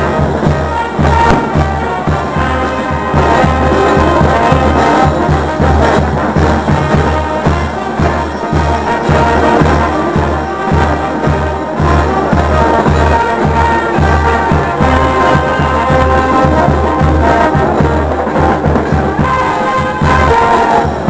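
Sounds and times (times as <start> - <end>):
bass drums: 0.0 - 21.0
snare drums: 0.0 - 21.0
trumpets: 0.0 - 21.0.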